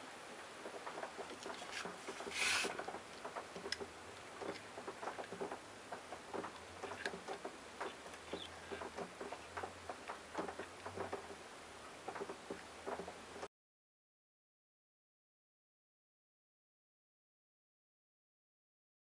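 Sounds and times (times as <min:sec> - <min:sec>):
scrape on wooden board: 0:02.1 - 0:02.8.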